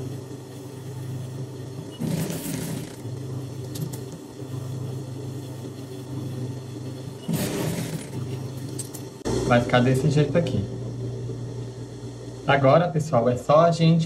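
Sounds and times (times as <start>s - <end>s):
sewing machine motor humming: 0.0s - 9.2s.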